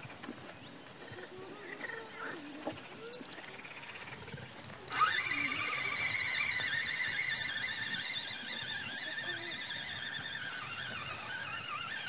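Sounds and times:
fishing reel whirring: 4.3s - 12.0s.

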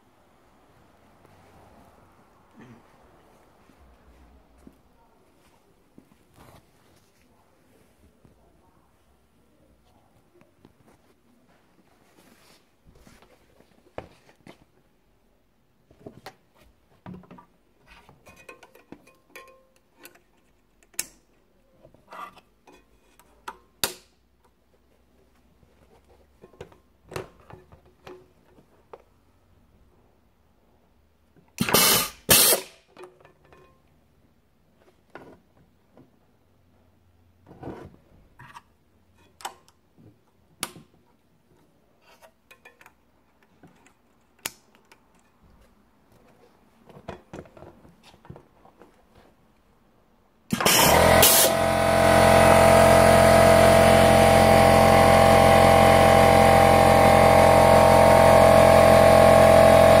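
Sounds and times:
loud machine hum: 50.6s - 60.0s.

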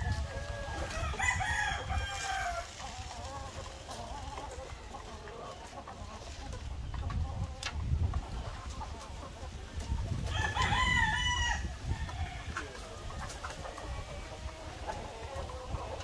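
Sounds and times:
hens clucking: 0.0s - 16.0s
rooster crowing: 0.9s - 2.6s, 10.3s - 12.5s.

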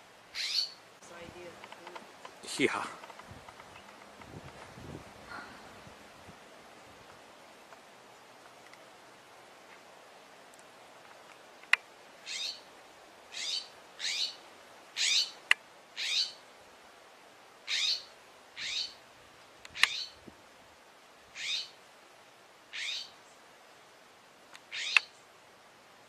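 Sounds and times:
jay harsh scolding calls: 15.0s - 15.3s, 22.7s - 23.1s, 24.7s - 25.1s.

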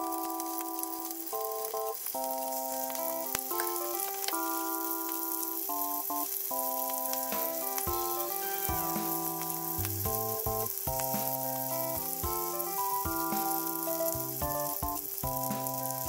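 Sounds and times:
background music of held notes: 0.0s - 16.0s
scallops frying in oil: 0.0s - 16.0s.

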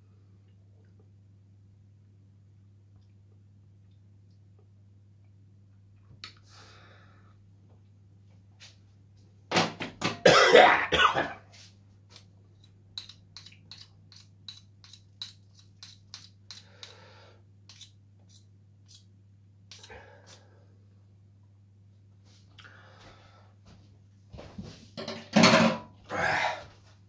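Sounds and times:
man coughing: 10.2s - 11.4s.

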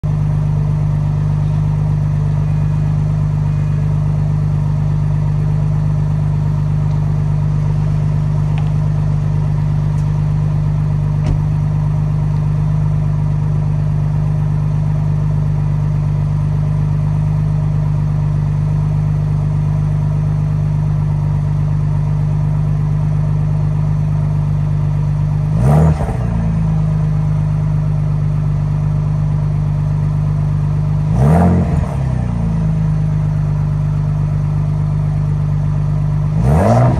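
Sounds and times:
car engine idling: 0.0s - 36.9s
engine revving: 25.4s - 27.5s, 31.0s - 32.8s, 36.2s - 36.9s.

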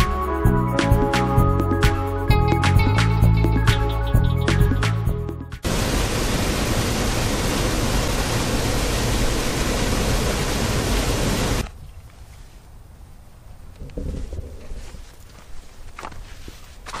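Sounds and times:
background music with a beat: 0.0s - 5.6s
waterfall splashing into pool: 5.6s - 11.6s.

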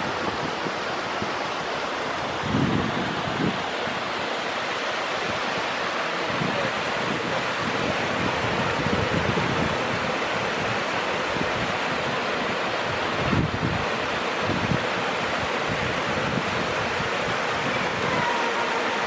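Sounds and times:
waterfall rushing: 0.0s - 19.0s
wind buffeting microphone: 2.1s - 4.1s, 6.2s - 19.0s.

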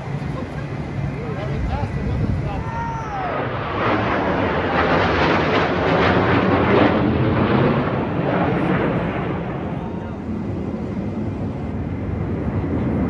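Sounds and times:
jets flying over low: 0.0s - 13.0s.

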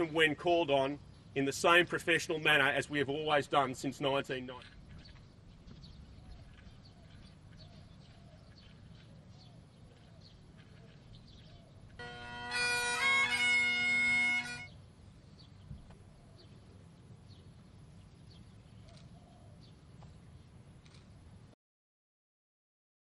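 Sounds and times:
bagpipes playing: 12.0s - 14.8s.

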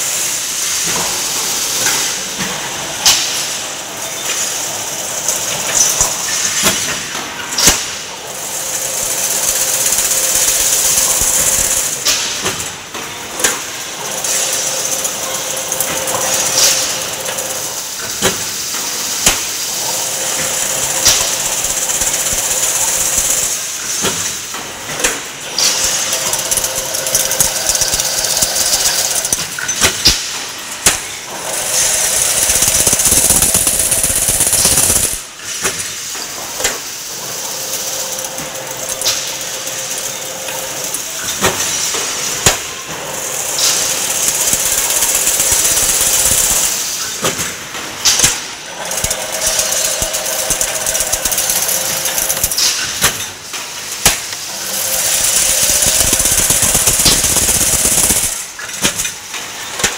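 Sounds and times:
wire hissing in machine: 31.5s - 35.7s, 43.4s - 47.0s, 54.6s - 59.0s
machine knocking: 48.1s - 53.3s.

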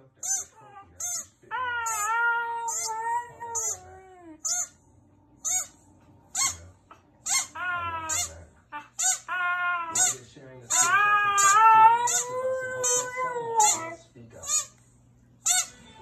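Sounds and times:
squeaky toy squeaking: 0.2s - 4.8s, 5.4s - 6.6s, 7.2s - 14.8s, 15.4s - 15.8s
dog howling: 0.5s - 4.5s, 7.4s - 10.1s, 10.7s - 14.0s.

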